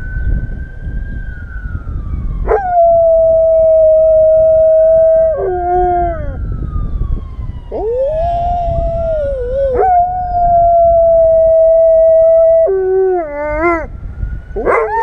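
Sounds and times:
siren: 0.0s - 15.0s
dog howling: 2.5s - 6.4s, 7.7s - 13.9s, 14.6s - 15.0s.

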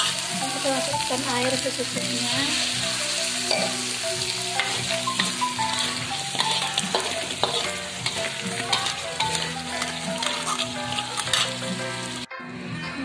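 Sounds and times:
food sizzling in a wok: 0.0s - 12.3s
metal spatula scraping pan: 2.5s - 12.1s.

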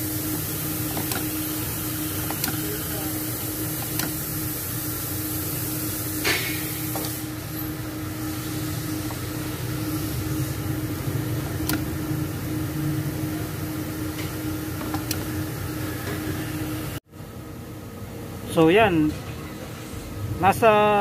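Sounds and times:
mechanical hum with held tone: 0.0s - 21.0s
sharp clicks: 11.6s - 11.9s.

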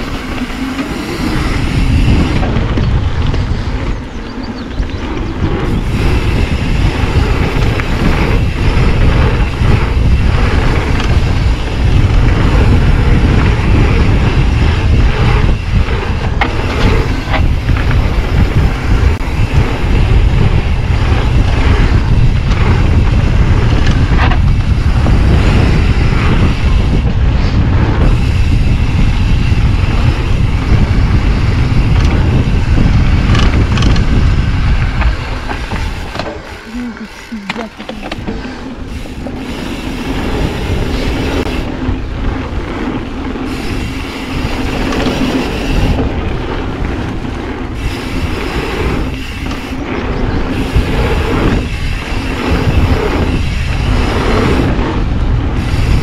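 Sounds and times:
bike rattling over bumps: 0.0s - 56.0s
bike tyres rumbling on dirt: 0.0s - 56.0s
wind buffeting microphone: 0.0s - 56.0s.

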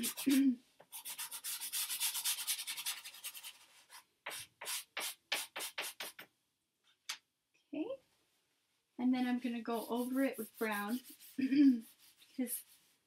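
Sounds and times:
pastel scribbling on paper: 0.0s - 6.2s, 9.2s - 12.9s.

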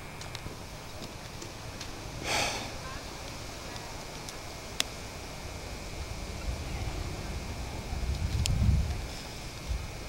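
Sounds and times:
faint steady hiss: 0.0s - 10.0s
wind rumble on microphone: 3.0s - 10.0s.

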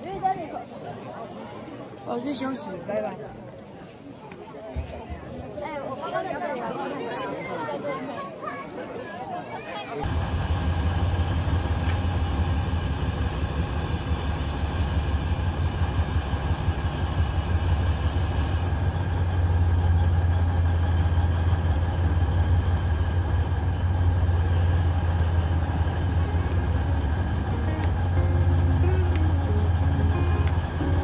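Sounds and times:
diesel locomotive engine hum: 10.0s - 31.0s.

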